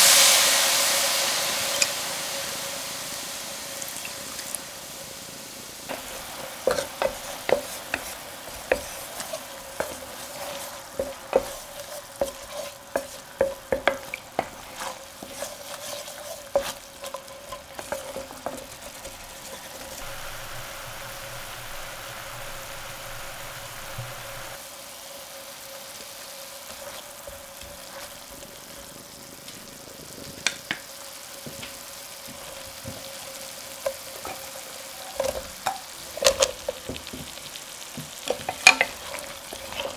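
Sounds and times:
wine sizzling in pan: 0.0s - 39.9s
spatula scraping metal pan: 5.9s - 24.6s, 38.2s - 39.9s.

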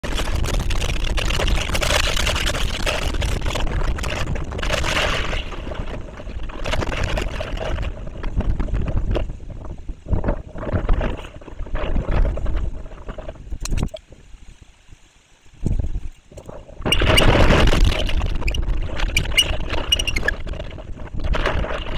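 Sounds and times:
driving rain: 0.0s - 15.8s
strong wind buffeting microphone: 0.0s - 21.9s.

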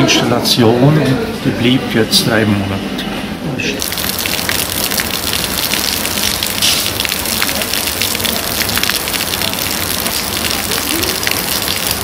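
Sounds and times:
splashing water: 3.8s - 12.0s.

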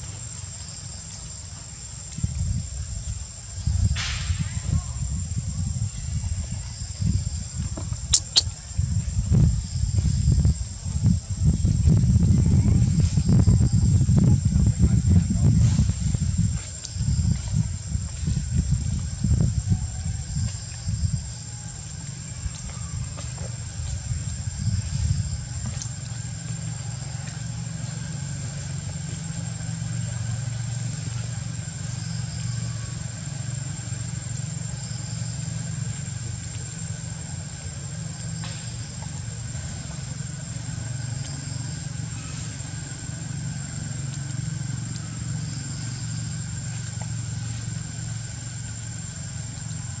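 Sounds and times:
low rumble of distant engines: 0.0s - 50.0s
faint short chirps: 8.1s - 8.6s.

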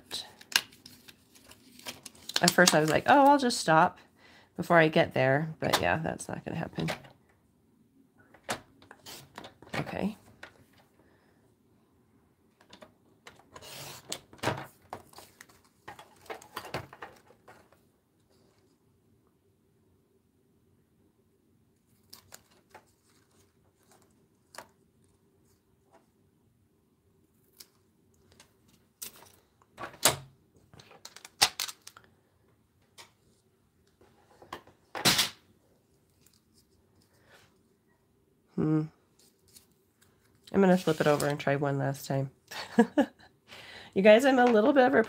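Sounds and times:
card rustling: 0.4s - 3.4s
paper rustling: 0.5s - 3.3s, 21.9s - 24.8s, 39.2s - 41.5s.

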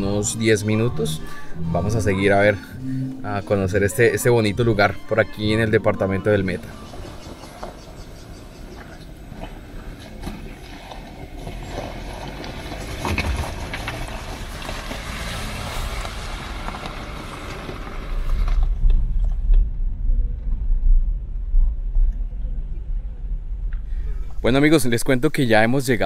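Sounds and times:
tyres crunching on loose stones: 10.2s - 19.5s
low rumble inside car cabin: 16.0s - 24.8s.

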